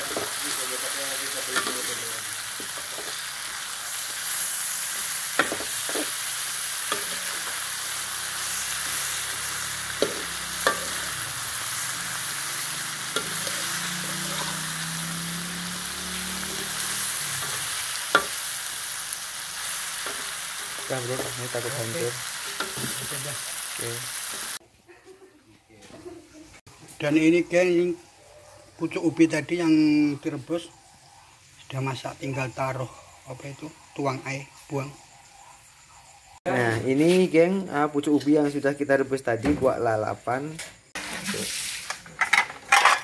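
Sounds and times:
fish sizzling in a wok: 0:00.0 - 0:24.6, 0:29.1 - 0:38.6, 0:40.8 - 0:43.0
spatula scraping a wok: 0:00.0 - 0:24.6, 0:41.0 - 0:43.0.

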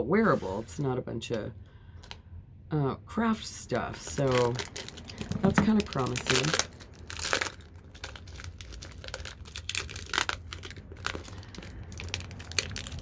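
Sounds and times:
plastic bag crinkling: 0:03.9 - 0:13.0.

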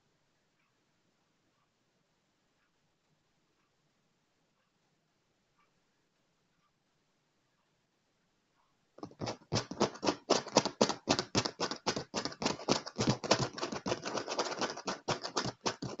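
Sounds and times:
fingernails tapping and scratching leather: 0:09.0 - 0:16.0.

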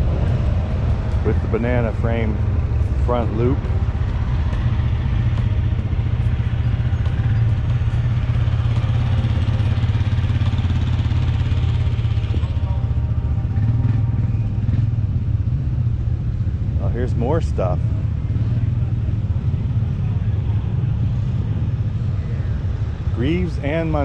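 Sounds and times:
engine idling: 0:00.0 - 0:24.0.

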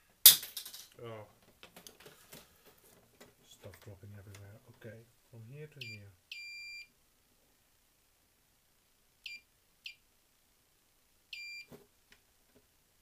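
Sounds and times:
multimeter beeps: 0:05.8 - 0:06.9, 0:09.3 - 0:10.0, 0:11.3 - 0:11.7.

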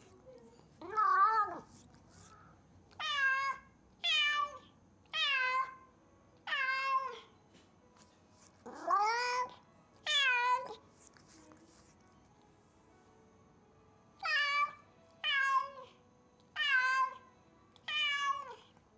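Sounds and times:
cat meowing loudly: 0:03.0 - 0:05.8, 0:06.4 - 0:07.2, 0:08.7 - 0:10.8, 0:14.2 - 0:15.9, 0:16.5 - 0:17.2, 0:17.9 - 0:18.6.

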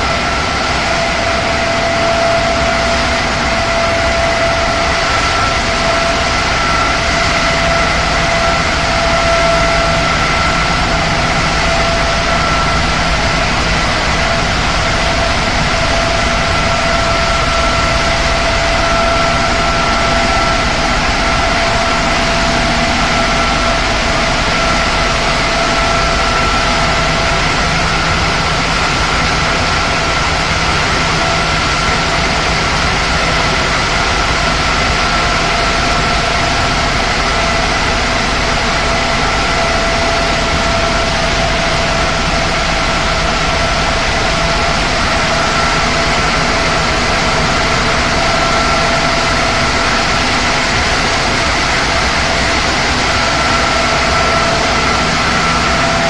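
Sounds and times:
steady mechanical whine: 0:00.0 - 0:56.0
vibrating screen machine din: 0:00.0 - 0:56.0.

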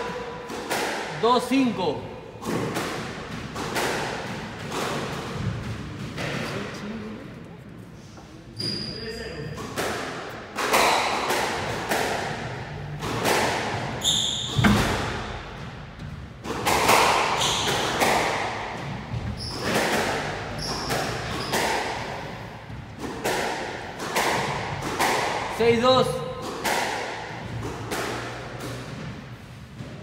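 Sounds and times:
squash ball hitting rackets and walls: 0:00.0 - 0:06.8, 0:08.6 - 0:30.0
shoe squeaks on wooden floor: 0:08.5 - 0:09.6, 0:14.0 - 0:14.8, 0:17.4 - 0:17.9, 0:19.3 - 0:19.8, 0:20.5 - 0:21.6.

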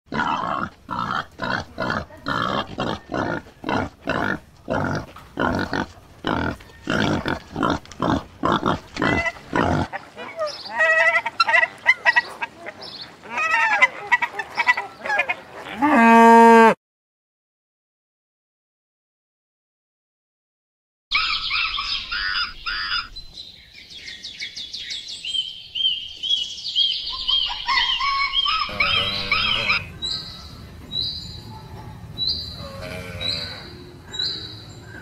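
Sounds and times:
pigs oinking: 0:00.1 - 0:16.6, 0:28.7 - 0:30.3
geese honking: 0:28.6 - 0:30.7.

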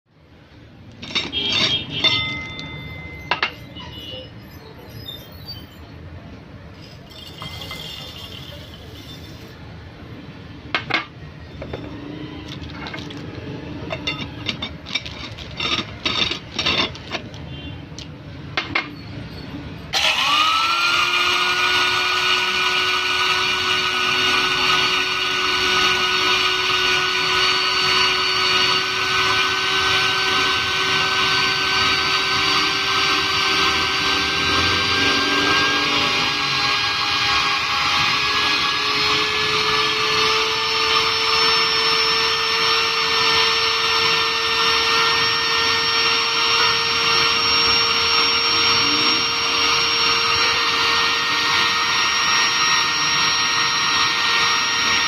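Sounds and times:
grinder motor whining: 0:00.9 - 0:03.5, 0:11.6 - 0:18.1, 0:19.9 - 0:55.0
metal and glass clinking: 0:00.9 - 0:03.8, 0:06.8 - 0:09.5, 0:13.9 - 0:17.3.

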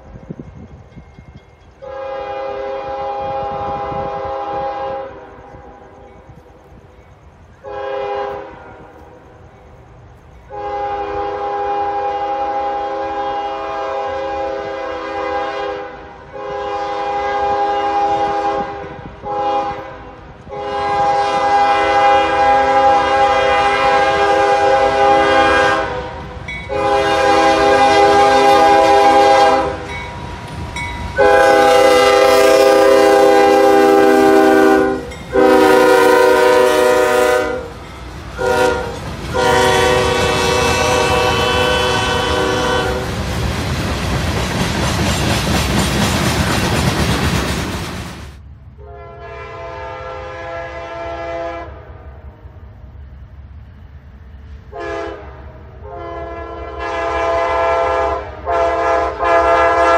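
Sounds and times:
passing train rumble: 0:00.0 - 0:59.9
locomotive air horn blasts: 0:01.8 - 0:05.8, 0:07.6 - 0:09.0, 0:10.5 - 0:30.0, 0:31.2 - 0:37.7, 0:38.4 - 0:43.2, 0:48.8 - 0:52.4, 0:54.7 - 0:59.9.

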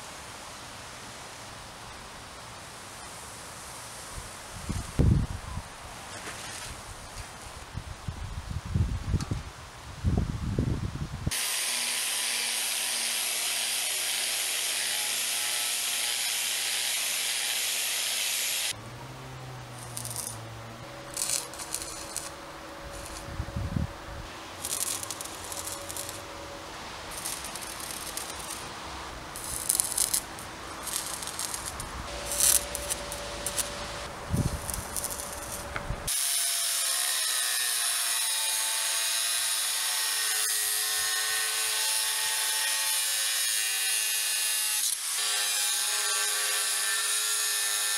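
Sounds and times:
arc welding crackle: 0:11.3 - 0:18.8, 0:19.6 - 0:23.4, 0:24.2 - 0:47.9
tack weld crackle bursts: 0:11.3 - 0:18.8, 0:19.6 - 0:20.4, 0:21.1 - 0:23.3, 0:24.5 - 0:26.3, 0:26.9 - 0:40.8.

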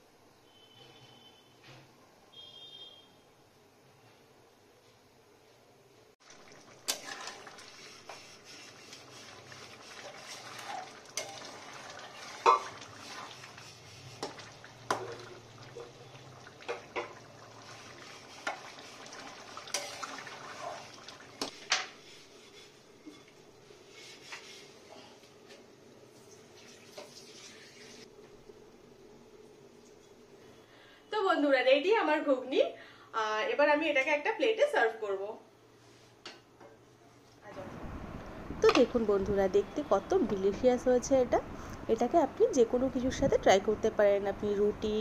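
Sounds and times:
curry simmering hiss: 0:06.2 - 0:25.3.

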